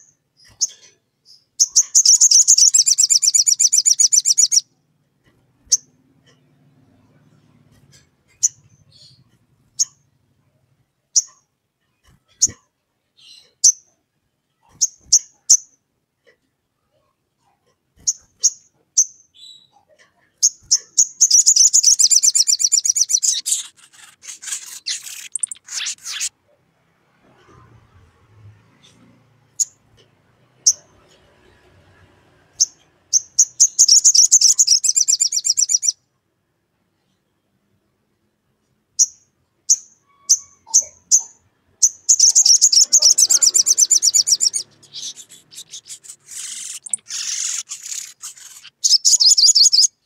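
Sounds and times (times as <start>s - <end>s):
sharp bird chirps: 0.0s - 4.6s, 20.4s - 26.3s, 32.6s - 36.0s, 39.0s - 50.0s
bird trilling: 1.6s - 4.6s, 21.0s - 26.3s, 40.1s - 50.0s.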